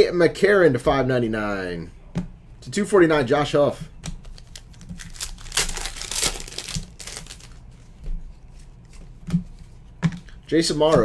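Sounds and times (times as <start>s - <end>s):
foil pack crinkling and tearing: 4.2s - 7.6s.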